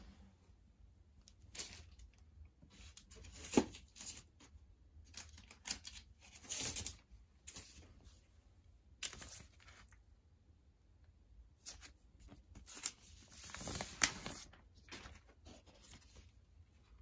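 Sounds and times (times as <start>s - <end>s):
record sleeves rustling: 11.6s - 17.0s.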